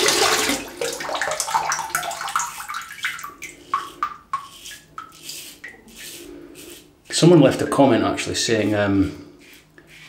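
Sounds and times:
razor scraping stubble: 3.5s - 10.0s.

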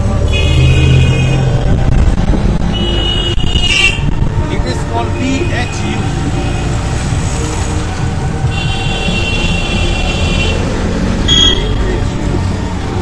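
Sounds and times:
heavy low rumble: 0.0s - 8.5s
street traffic: 0.0s - 13.0s.

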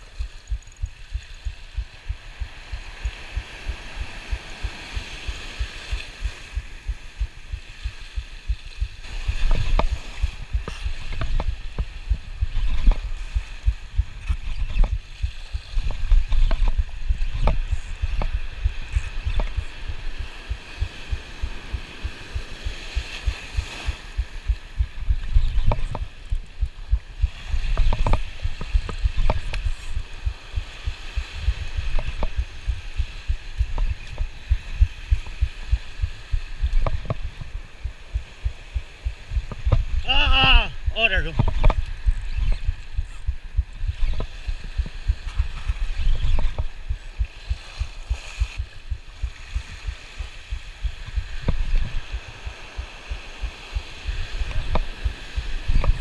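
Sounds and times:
surf washing over rocks: 0.0s - 56.0s
fishing reel cranking thumps: 0.2s - 1.5s.

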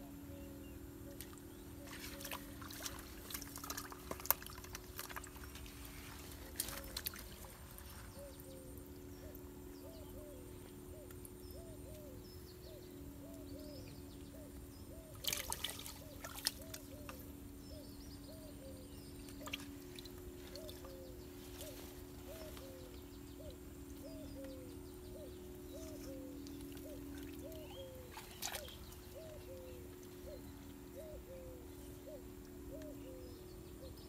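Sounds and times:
steady low drone: 0.0s - 34.0s
fish splashing in bucket: 1.9s - 7.4s.

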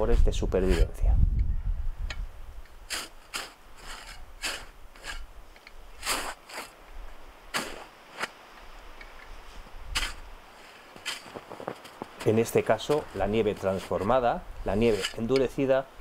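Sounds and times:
shovel digging in hard snow: 0.6s - 0.9s, 2.9s - 5.3s, 5.9s - 6.8s, 7.5s - 8.4s, 9.9s - 15.5s.

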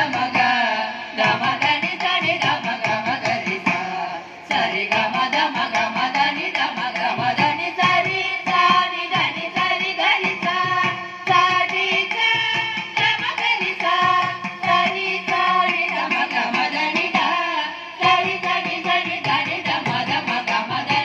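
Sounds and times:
group of singers singing: 0.0s - 21.0s
hand drum rhythm: 0.0s - 21.0s.

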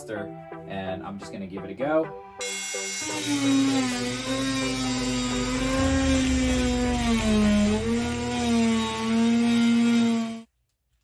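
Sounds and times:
multi-tool cutting drywall: 3.1s - 10.5s.

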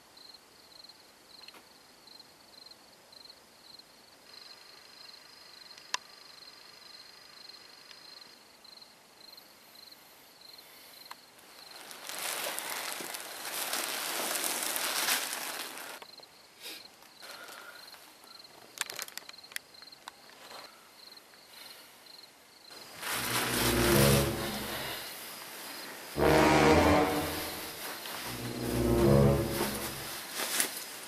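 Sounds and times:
rustling and handling noise: 11.7s - 16.0s, 22.9s - 25.7s, 27.1s - 31.0s.

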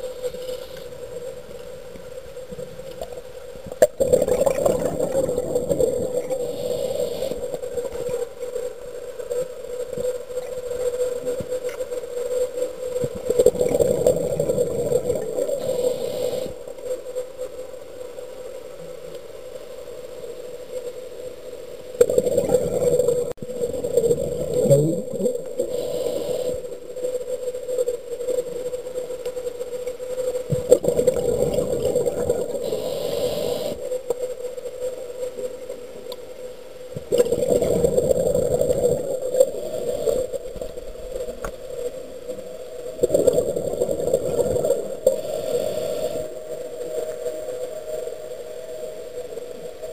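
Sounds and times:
diver breathing: 4.4s - 7.6s, 32.3s - 33.8s.

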